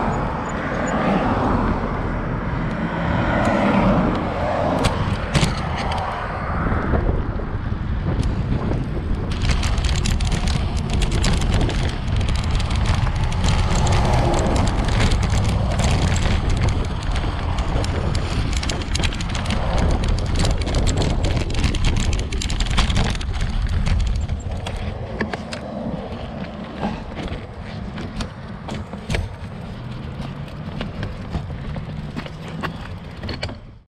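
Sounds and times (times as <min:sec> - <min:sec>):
wind rumble on microphone: 0:00.0 - 0:33.9
bicycle tyres crunching on gravel: 0:08.6 - 0:28.0.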